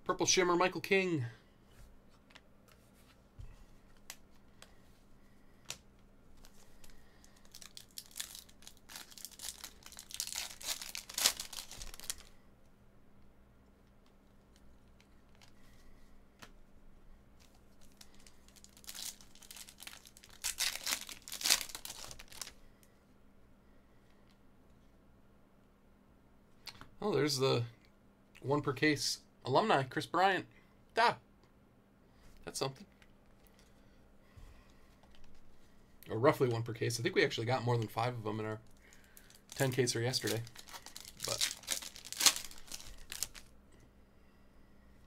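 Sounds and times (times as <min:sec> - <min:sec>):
cards shuffling with crinkly rustling: 0:05.6 - 0:12.4, 0:17.3 - 0:22.6, 0:34.9 - 0:35.7, 0:36.3 - 0:43.5.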